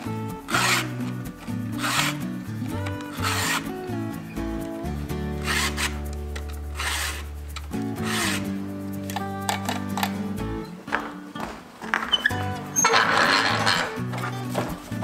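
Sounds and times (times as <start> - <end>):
background music: 0.0 - 15.0
file rasping on chain: 0.5 - 1.0, 1.7 - 2.3, 3.1 - 3.7, 5.4 - 6.0, 6.8 - 7.3, 8.0 - 8.5.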